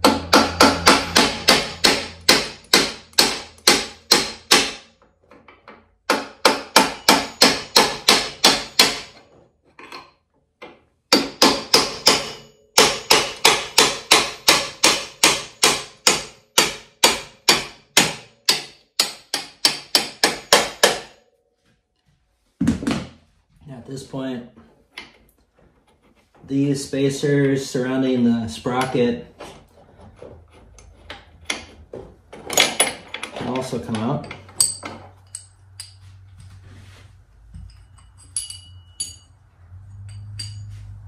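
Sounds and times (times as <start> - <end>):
hammer striking steel punch: 0.0 - 4.9, 6.1 - 9.2, 11.1 - 21.2.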